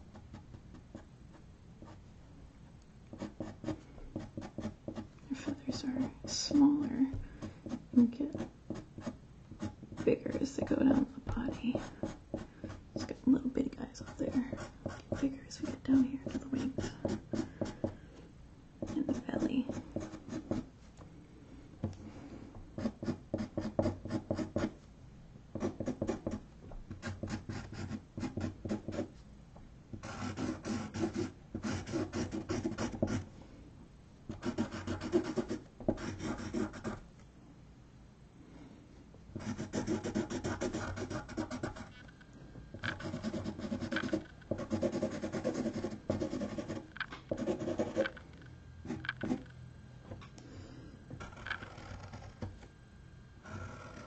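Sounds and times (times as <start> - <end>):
marker scratching on canvas board: 3.1 - 13.2, 14.0 - 18.0, 18.8 - 20.7, 22.8 - 24.8, 25.6 - 29.1, 30.0 - 33.2, 34.3 - 37.0, 39.4 - 42.0, 42.8 - 48.2, 48.9 - 49.5.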